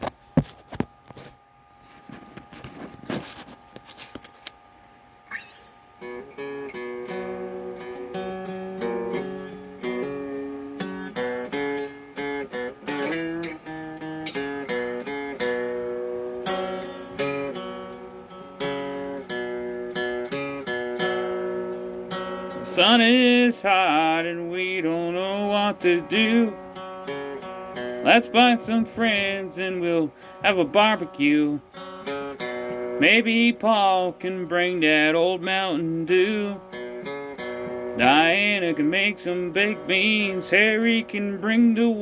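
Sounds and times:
acoustic guitar strumming: 5.2s - 42.0s.

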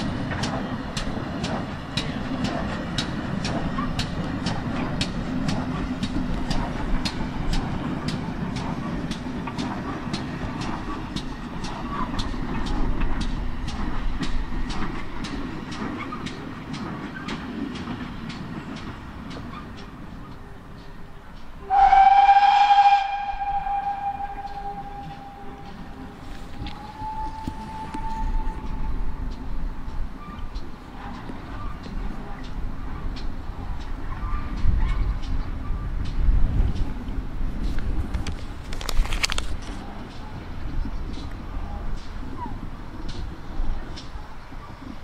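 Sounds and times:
steam train passing slowly: 0.0s - 45.0s
wheels clicking on rails: 0.0s - 45.0s.

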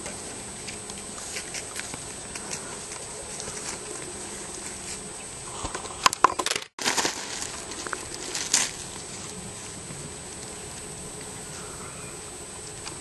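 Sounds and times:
balloons crinkling and bumping: 5.7s - 9.2s.

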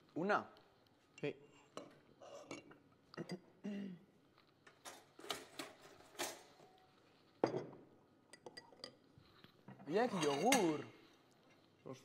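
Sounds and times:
kitchen items knocking and clicking: 4.7s - 6.6s.

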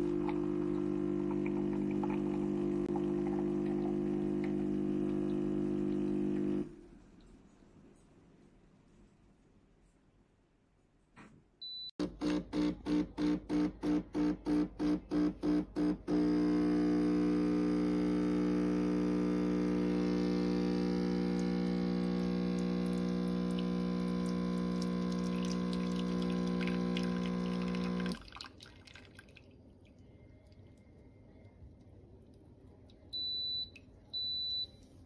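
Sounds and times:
espresso machine pump humming: 0.0s - 6.7s, 12.0s - 28.2s.

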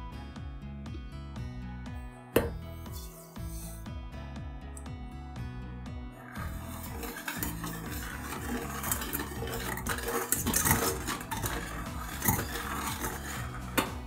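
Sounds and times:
liquid swishing: 6.2s - 14.0s
whisk clinking and scraping on pan: 6.2s - 14.0s.

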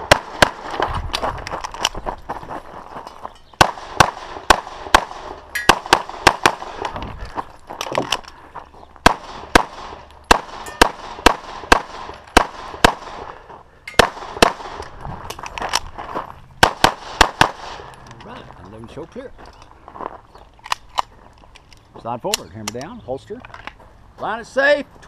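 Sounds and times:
pistol shots: 0.0s - 0.8s, 3.6s - 6.8s, 9.0s - 14.9s, 16.6s - 17.9s.

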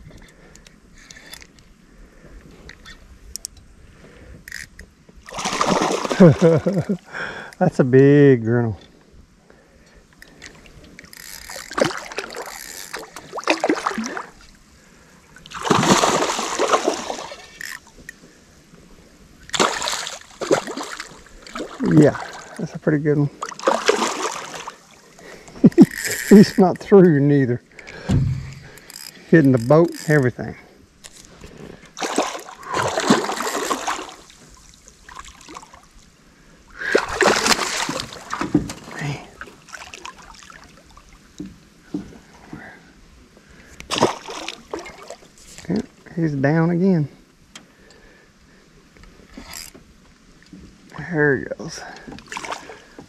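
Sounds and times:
fish thrashing and splashing: 5.3s - 7.0s, 11.0s - 14.4s, 15.5s - 17.9s, 19.5s - 22.6s, 23.4s - 25.0s, 32.0s - 35.8s, 36.9s - 39.0s, 43.9s - 45.2s.

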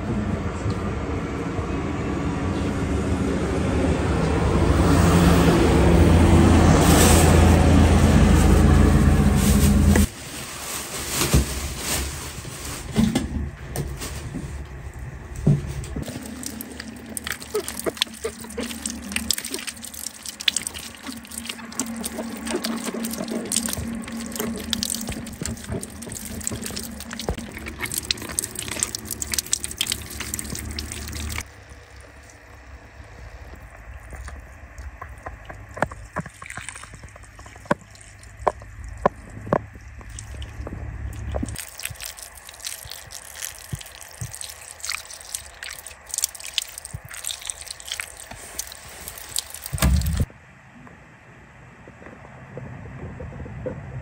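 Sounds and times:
water pouring and splashing: 5.1s - 12.9s, 16.0s - 50.3s.

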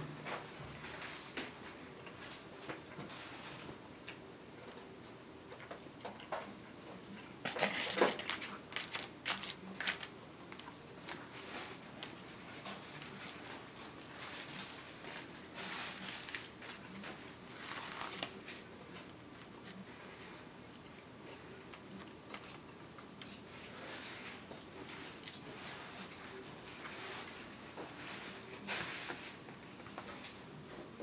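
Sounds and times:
fork scraping plastic bowl: 7.5s - 10.1s.

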